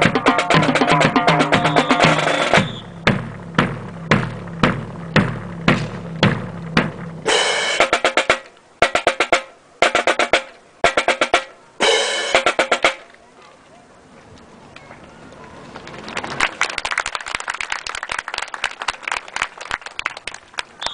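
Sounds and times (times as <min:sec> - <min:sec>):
marching drum beats: 0:00.0 - 0:13.1
snare drum rolls: 0:00.0 - 0:13.1.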